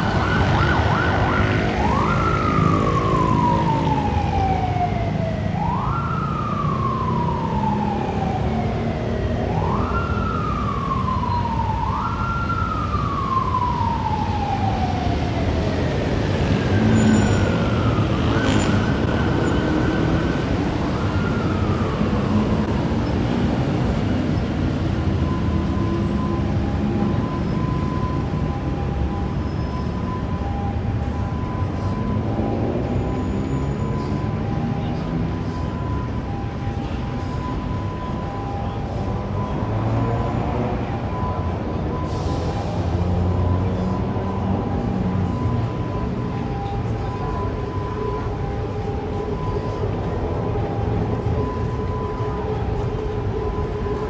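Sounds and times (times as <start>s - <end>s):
city traffic: 0.0s - 54.0s
emergency siren wailing: 0.0s - 54.0s.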